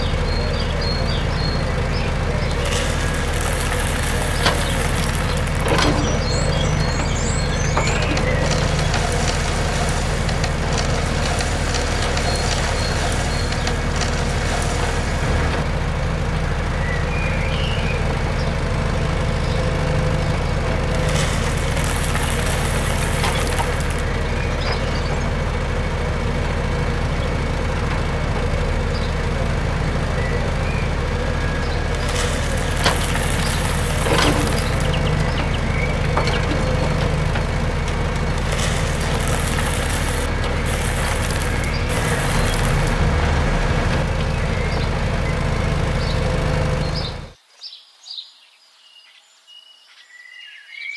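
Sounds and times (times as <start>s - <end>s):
toy excavator motors humming: 0.0s - 47.4s
gravel rattling into plastic trolley: 0.2s - 16.5s, 18.0s - 47.4s.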